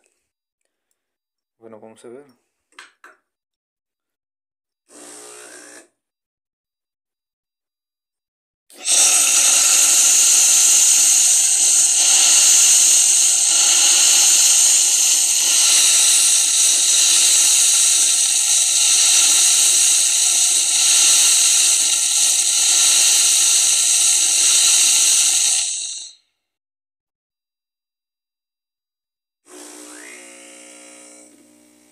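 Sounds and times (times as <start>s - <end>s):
espresso machine steam hissing: 8.8s - 26.2s.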